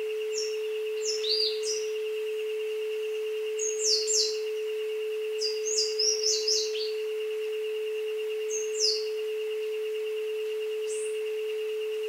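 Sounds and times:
high whistling bird calls: 0.3s - 1.9s, 3.6s - 4.5s, 5.4s - 7.0s.

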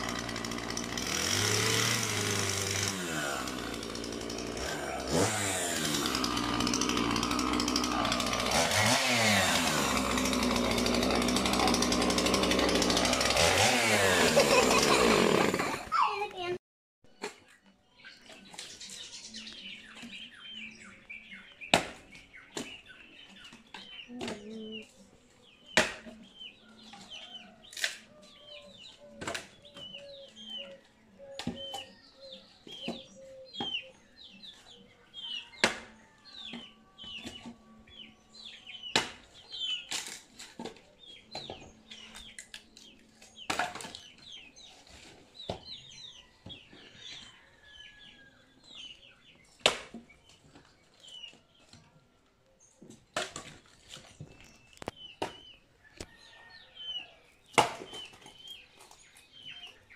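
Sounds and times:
small birds chirping: 15.9s - 40.1s, 40.8s - 59.9s
axe chopping firewood: 21.7s - 22.8s, 25.7s - 26.2s, 35.6s - 36.7s, 38.9s - 39.3s, 43.4s - 44.1s, 49.6s - 50.1s, 53.1s - 53.6s, 57.5s - 58.3s.

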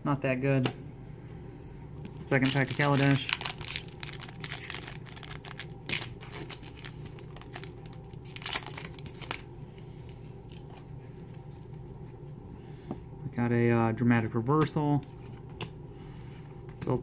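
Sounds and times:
cards rustling: 2.2s - 9.4s
foil wrapper tearing and crackling: 2.2s - 9.5s.

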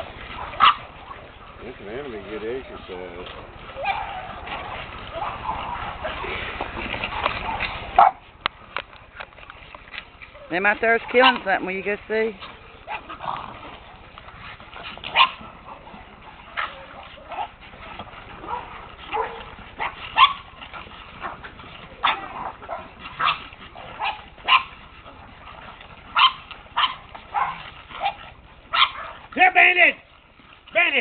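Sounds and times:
dogs barking and yipping: 0.0s - 31.0s.

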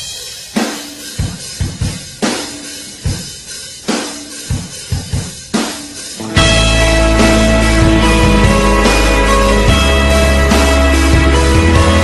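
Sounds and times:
bass drum beats: 6.2s - 12.0s.

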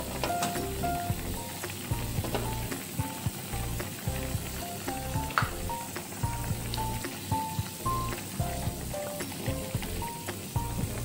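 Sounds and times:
light background music: 0.0s - 11.0s
stew boiling in a pot: 0.0s - 11.0s.

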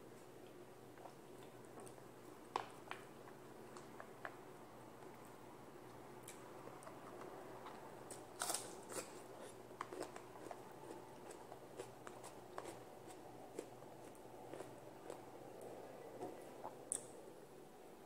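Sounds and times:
chewing: 6.2s - 17.2s.

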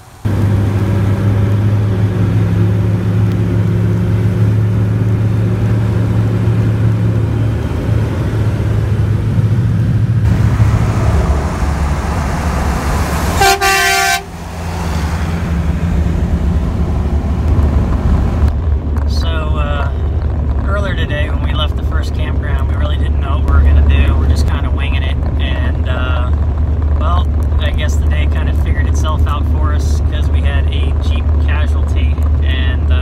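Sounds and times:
engine and road drone: 0.0s - 33.0s
truck air horn blast: 13.0s - 15.4s.

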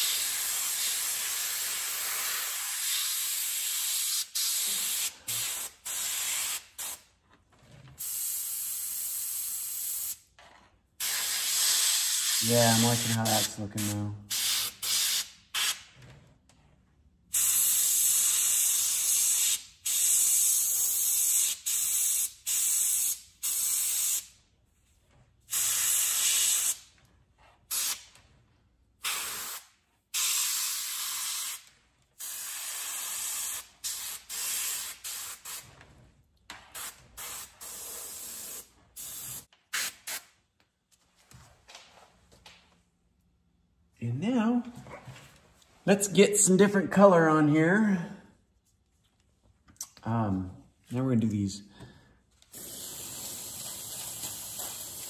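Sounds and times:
airbrush spraying bursts: 0.0s - 7.1s, 8.0s - 10.2s, 11.0s - 15.9s, 17.3s - 24.4s, 25.5s - 26.9s, 27.7s - 28.1s, 29.0s - 35.7s, 36.7s - 40.4s, 52.5s - 55.0s.

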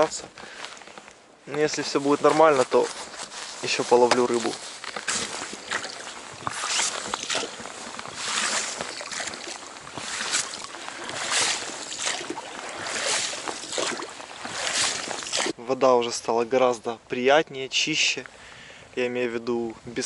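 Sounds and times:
oars splashing through water: 1.8s - 15.6s
light knocks of oars: 4.0s - 15.6s.

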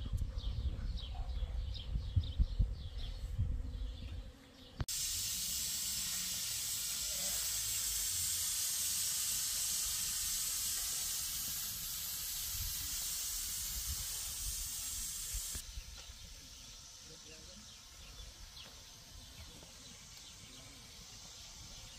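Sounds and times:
pressure cooker steam hissing: 4.9s - 15.6s.

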